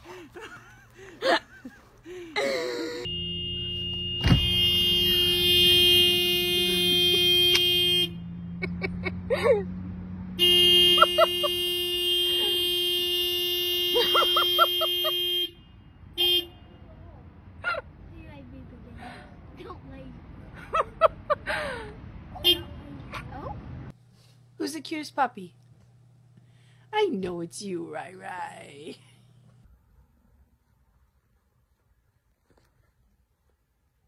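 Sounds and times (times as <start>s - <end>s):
car horn blaring: 3.0s - 8.6s, 10.3s - 16.9s, 22.4s - 22.8s.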